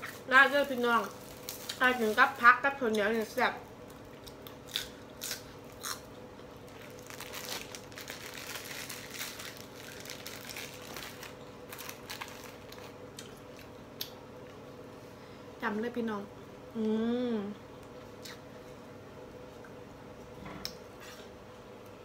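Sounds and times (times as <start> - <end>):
person chewing crunchy food: 3.9 - 14.2
plastic bag crinkling: 6.7 - 13.0.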